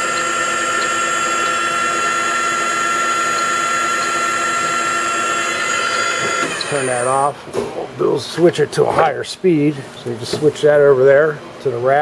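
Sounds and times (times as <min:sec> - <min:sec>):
drill press whining: 0:00.0 - 0:07.4.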